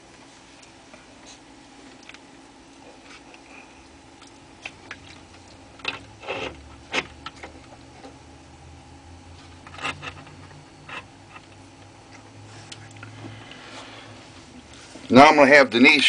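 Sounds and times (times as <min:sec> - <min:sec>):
cable plugs clicking and scraping: 0:05.8 - 0:07.5, 0:09.6 - 0:11.6.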